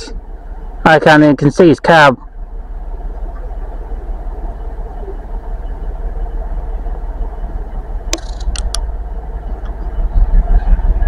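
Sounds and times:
diesel locomotive engine rumbling: 0.0 - 11.0
sharp clicks: 8.1 - 8.8.

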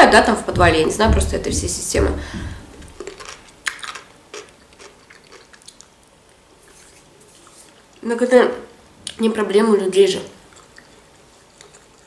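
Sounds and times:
chewing cucumber crunches: 2.9 - 8.0, 10.4 - 12.0.

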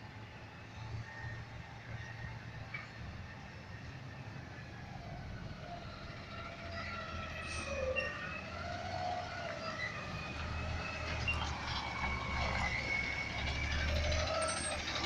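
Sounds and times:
diesel engine rumble: 0.0 - 15.0.

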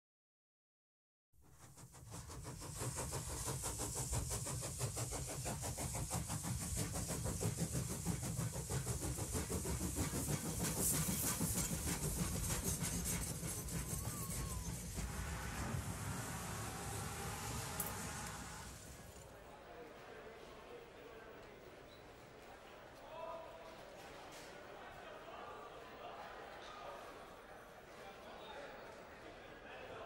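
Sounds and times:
hiss of steam: 1.5 - 19.3
steam locomotive running: 1.5 - 20.2.

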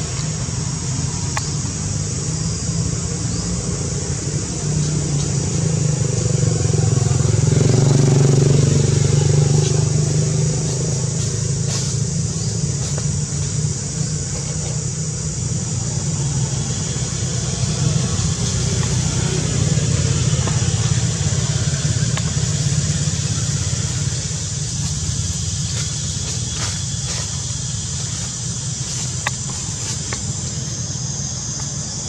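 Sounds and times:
even hiss: 0.0 - 32.0
low motor drone: 0.0 - 32.0.

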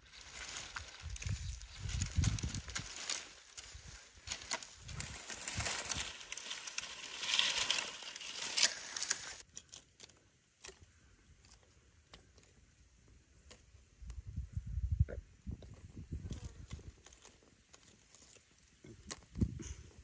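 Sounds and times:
brush dragged through grass: 0.0 - 9.4
small stick fire crackling: 0.0 - 14.3, 15.8 - 19.6.

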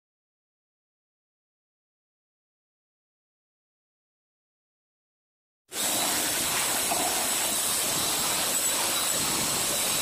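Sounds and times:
water spray jet hissing: 5.7 - 10.0
faint high whine: 5.8 - 10.0.

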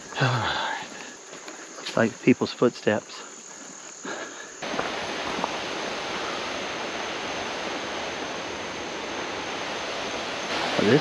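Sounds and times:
river waterfall rushing: 4.6 - 11.0.

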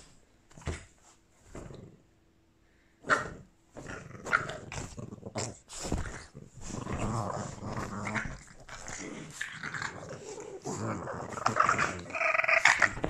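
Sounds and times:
dogs growling: 3.1 - 13.0
dogs scuffling in a bed: 5.7 - 9.4.

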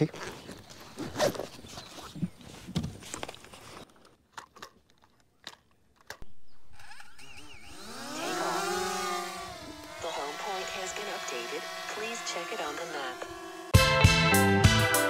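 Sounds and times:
drone propeller whine: 6.3 - 13.8.

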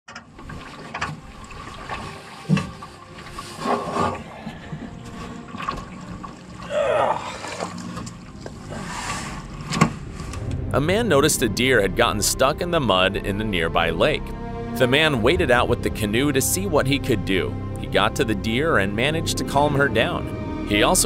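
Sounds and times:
water and mud sloshing: 0.1 - 10.6.

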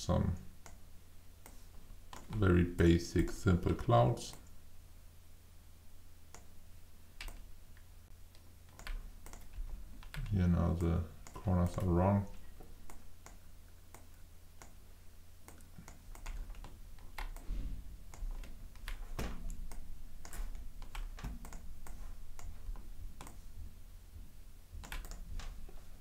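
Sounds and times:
steady low hum: 0.0 - 26.0
mouse and keyboard clicks: 1.4 - 2.4, 8.7 - 10.3, 15.4 - 23.4, 24.8 - 25.6.

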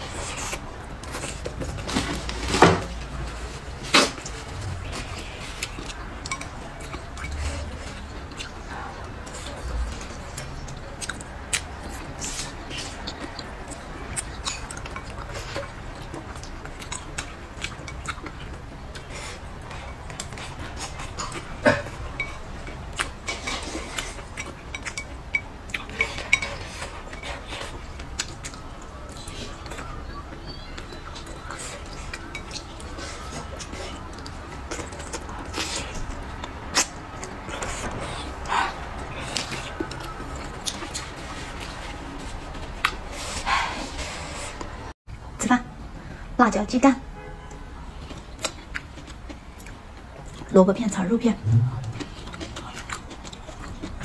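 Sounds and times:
mouth sounds of eating: 47.9 - 54.0.

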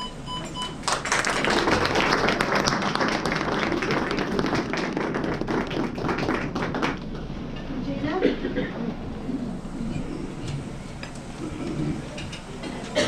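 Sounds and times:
audience applauding: 0.8 - 7.2.

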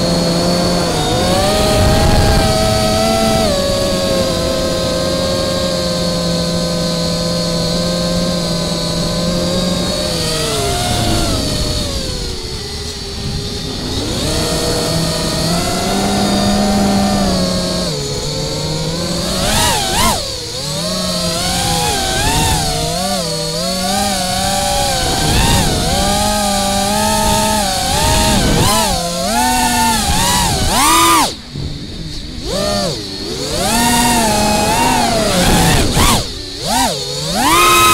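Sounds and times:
quadcopter motors whining: 0.0 - 37.9.

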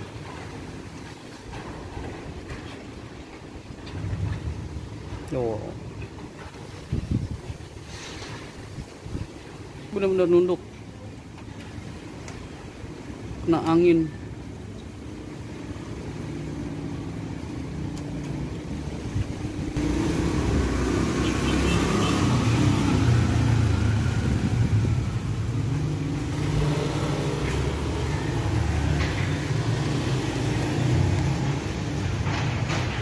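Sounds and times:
gusty wind on microphone: 6.1 - 9.8, 18.9 - 33.0.

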